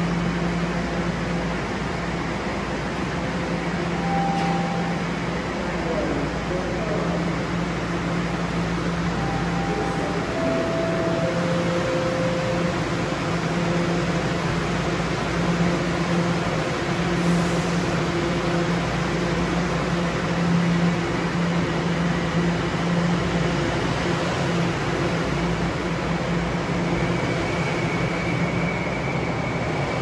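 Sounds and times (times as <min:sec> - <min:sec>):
train low hum: 0:00.0 - 0:30.0
three-note door-closing chime: 0:04.0 - 0:05.1.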